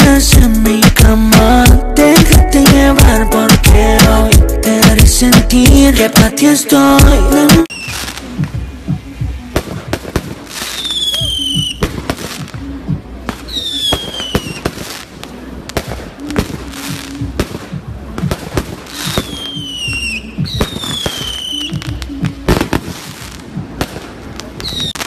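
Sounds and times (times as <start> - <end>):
fireworks crackling bangs: 7.6 - 25.0
fireworks whistling: 7.7 - 8.5, 9.6 - 12.7, 13.3 - 25.0.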